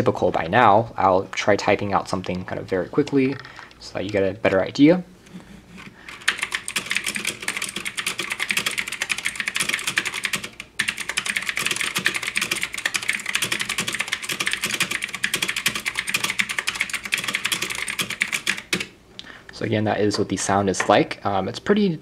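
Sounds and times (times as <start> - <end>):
fast mechanical keyboard typing: 6.1 - 18.9.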